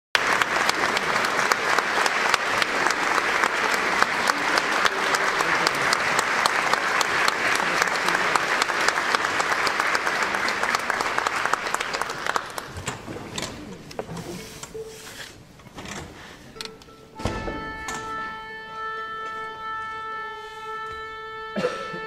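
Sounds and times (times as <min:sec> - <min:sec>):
audience applauding: 0:00.1 - 0:13.0.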